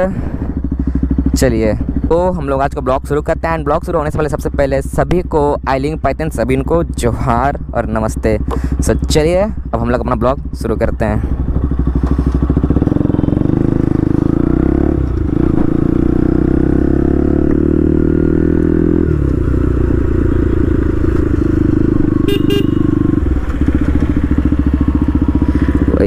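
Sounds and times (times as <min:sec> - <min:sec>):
motorcycle engine accelerating: 0:00.0 - 0:26.0
short horn beeps: 0:22.2 - 0:23.0.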